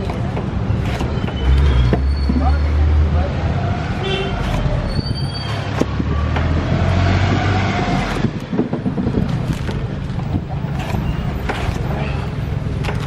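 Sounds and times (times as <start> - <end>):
brief high squeal: 4.8 - 5.6
knife chopping on wooden board: 10.7 - 12.0.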